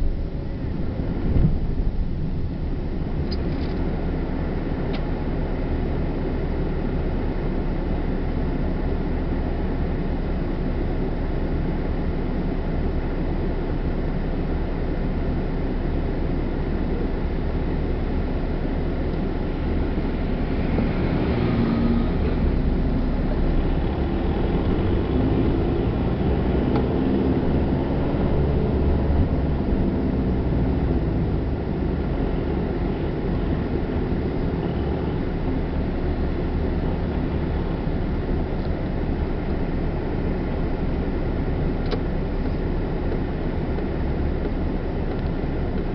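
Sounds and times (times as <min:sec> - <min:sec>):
car engine and tyres rumbling: 0:00.0 - 0:45.9
bus passing: 0:16.9 - 0:41.8.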